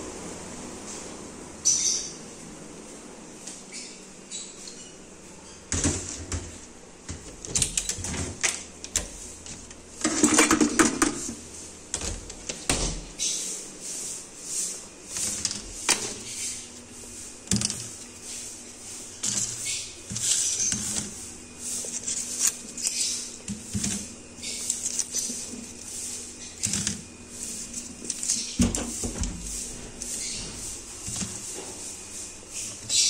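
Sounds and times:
potatoes into plastic basket: 5.7s - 12.7s, 15.1s - 33.0s.

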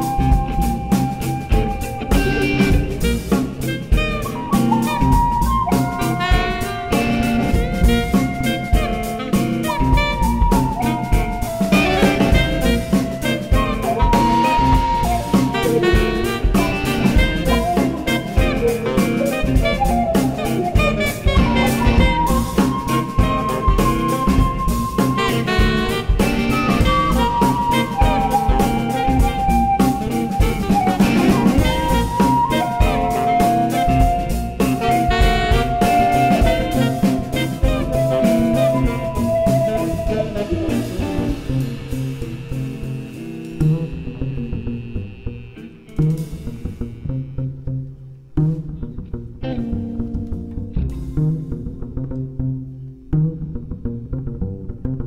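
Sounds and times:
drum kit: 0.0s - 47.1s, 49.5s - 52.1s
jazz band playing: 0.0s - 53.3s
guitar: 0.0s - 55.0s
long held high note: 20.4s - 47.4s.

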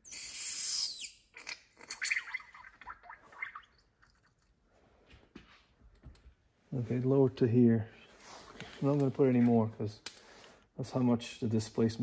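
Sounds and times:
shock absorber hiss and squeal: 0.0s - 1.2s.

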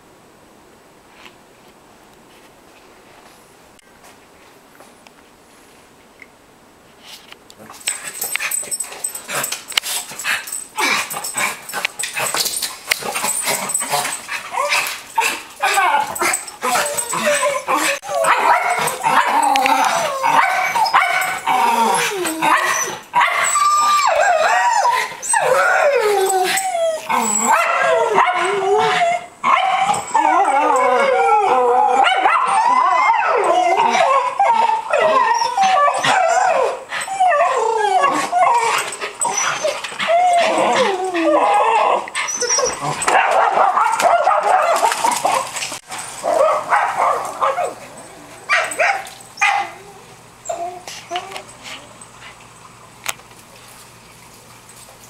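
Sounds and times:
dogs whining and yipping: 7.9s - 52.5s
dogs barking: 14.6s - 24.6s, 27.4s - 30.1s, 42.6s - 45.6s, 46.2s - 49.8s.

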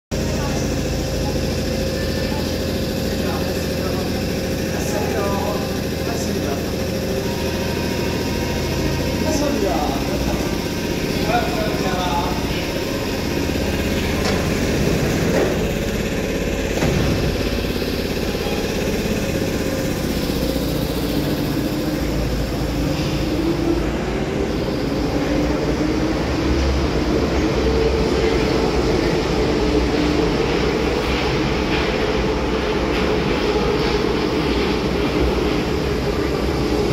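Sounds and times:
second train arriving: 0.1s - 36.9s
train traction motors whining: 0.1s - 36.9s
wheels rumbling on track: 0.1s - 36.9s.

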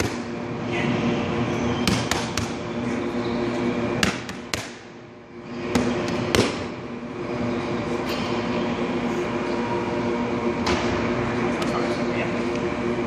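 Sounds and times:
boxing gloves punching mitts: 1.8s - 2.6s, 4.0s - 4.8s, 5.7s - 6.7s.

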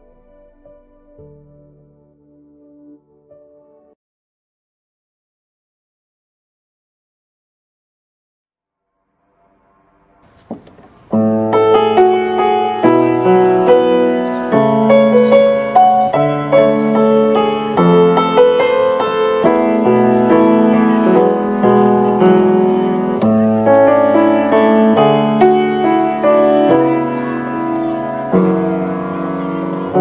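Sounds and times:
slow piano music: 0.0s - 4.0s, 10.2s - 30.0s.

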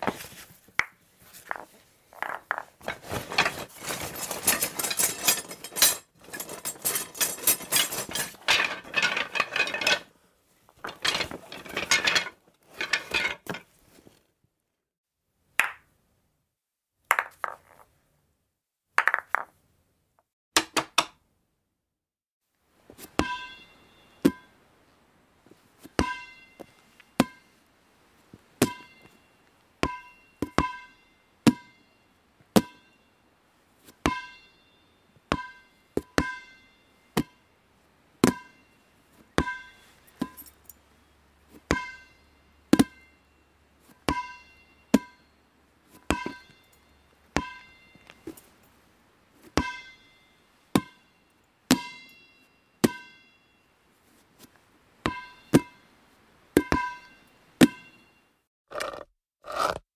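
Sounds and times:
ball bouncing: 15.6s - 15.8s, 17.1s - 17.9s, 19.0s - 19.6s.

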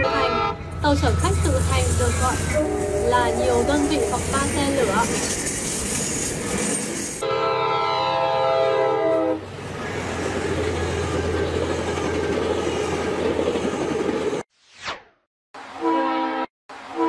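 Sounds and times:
train horn chord: 0.0s - 1.3s, 1.9s - 4.5s, 7.2s - 9.4s, 15.8s - 17.0s
train rushing past: 0.0s - 7.2s, 9.0s - 14.4s
train rumbling on rails: 0.0s - 7.3s, 8.9s - 14.4s.

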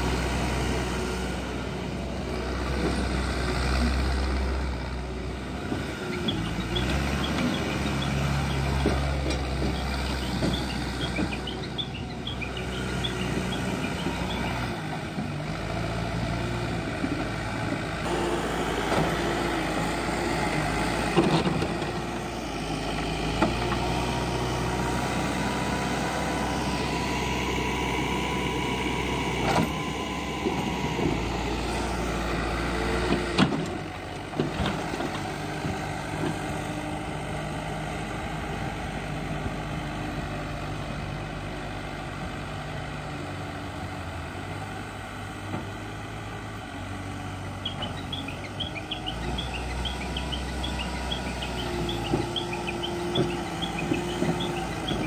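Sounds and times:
diesel engine running: 0.0s - 55.0s
birds chirping: 6.1s - 14.8s, 47.3s - 55.0s.

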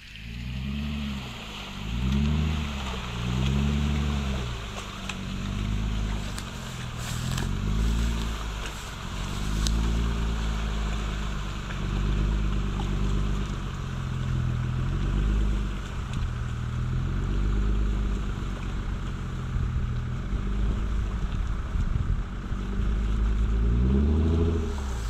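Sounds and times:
engine revving under load: 0.0s - 25.0s.

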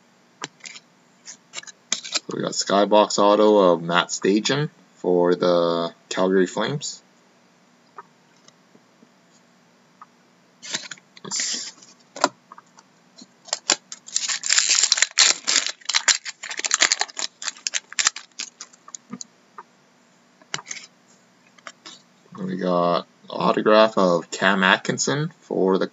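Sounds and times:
foil wrapper tearing and crinkling: 13.4s - 18.8s
cardboard cards handled: 13.5s - 18.8s.

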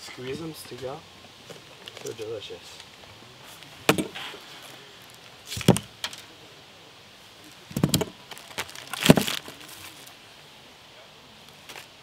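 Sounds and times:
plastic packaging crinkling: 7.8s - 10.1s.

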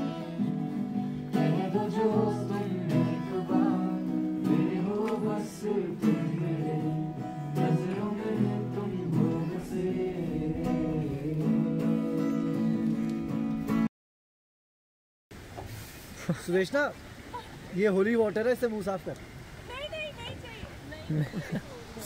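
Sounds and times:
person singing: 0.0s - 13.0s
acoustic guitar strumming: 0.0s - 13.9s.

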